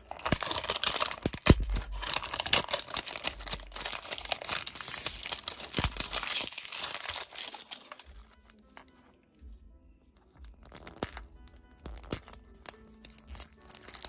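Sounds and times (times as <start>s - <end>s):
plastic wrapper crinkling: 0.0s - 9.0s.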